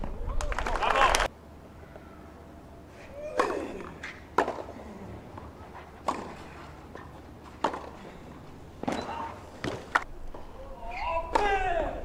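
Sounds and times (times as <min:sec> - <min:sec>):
tennis racket hitting ball: 0:06.0 - 0:08.0.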